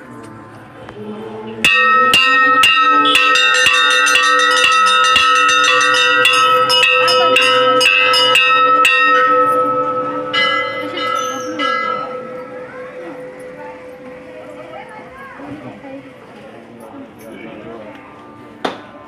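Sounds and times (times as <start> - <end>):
temple bells ringing: 1.6 - 16.2.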